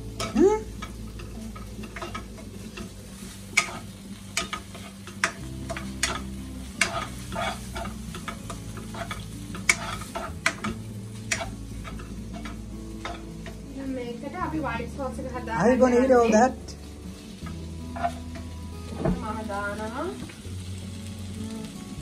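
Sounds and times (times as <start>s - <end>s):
meat and onion sizzling in a pan: 0.0s - 22.0s
wooden spoon scraping a pan: 0.2s - 13.6s, 17.2s - 19.8s.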